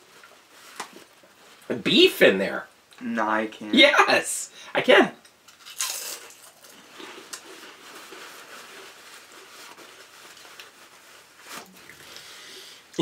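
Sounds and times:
potato chips crunching: 0:05.5 - 0:09.4.

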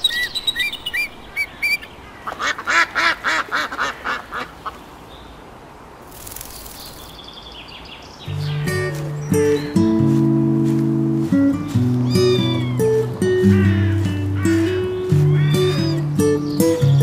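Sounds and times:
bird chirps rising: 0:00.0 - 0:02.0, 0:12.0 - 0:17.0
geese honking: 0:12.0 - 0:16.2.

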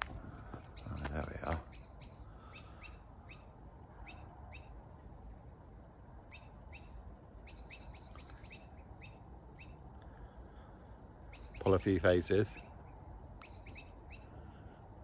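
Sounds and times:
small bird chirping: 0:00.2 - 0:04.8, 0:06.3 - 0:09.8, 0:11.3 - 0:14.4.

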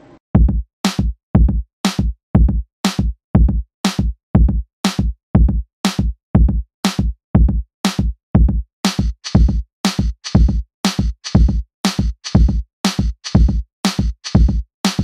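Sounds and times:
electronic music with drum-machine beat: 0:06.9 - 0:15.0.

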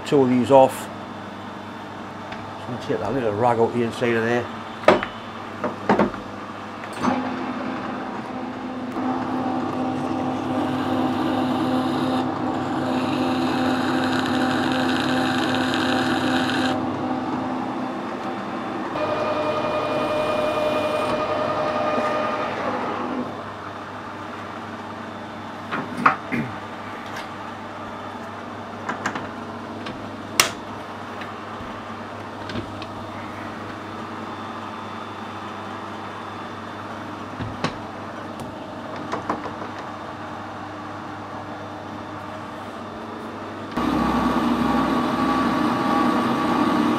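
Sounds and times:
metal lathe running: 0:07.1 - 0:23.4, 0:43.8 - 0:46.9.

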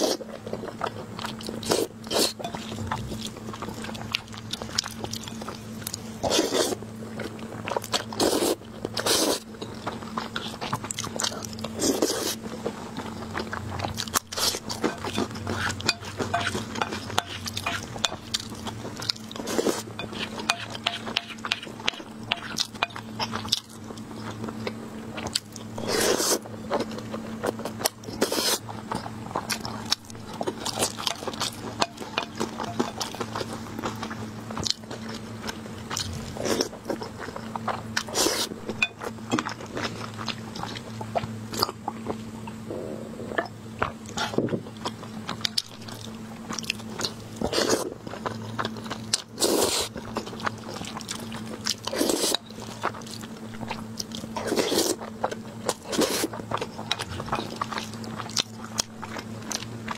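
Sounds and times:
wet chewing and smacking: 0:43.4 - 0:59.9.

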